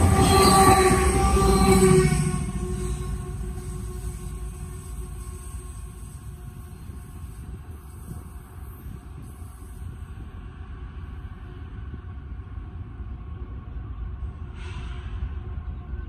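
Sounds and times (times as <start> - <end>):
freight train rumble: 0.0 - 16.0
short hiss: 14.6 - 15.3.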